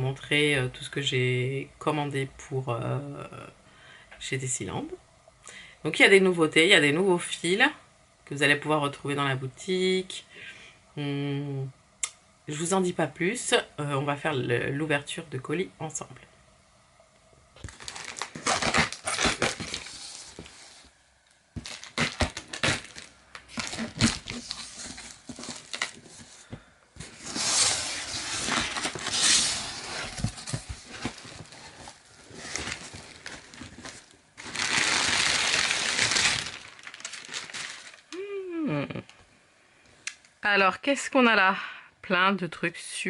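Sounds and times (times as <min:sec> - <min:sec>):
cardboard tearing: 0:17.6 - 0:20.8, 0:21.6 - 0:26.4, 0:27.0 - 0:38.0
packaging crinkling and rustling: 0:17.6 - 0:20.9, 0:21.5 - 0:38.2.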